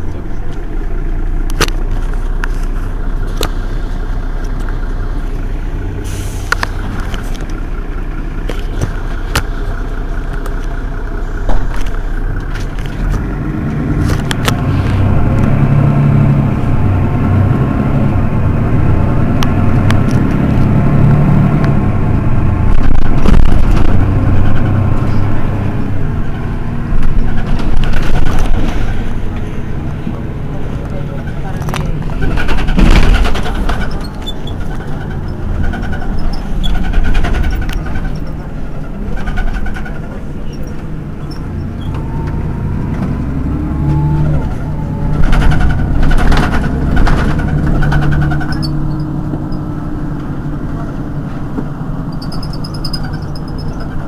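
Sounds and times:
bus diesel engine idling: 0:00.0 - 0:54.0.

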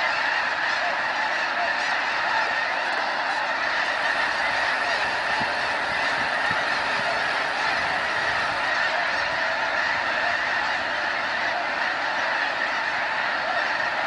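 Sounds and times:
flock of geese honking: 0:00.0 - 0:14.0.

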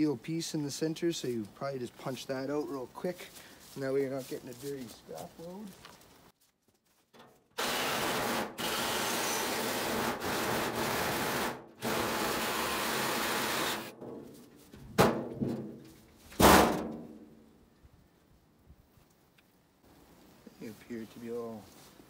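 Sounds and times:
reciprocating saw cutting sheet steel: 0:07.6 - 0:14.0.

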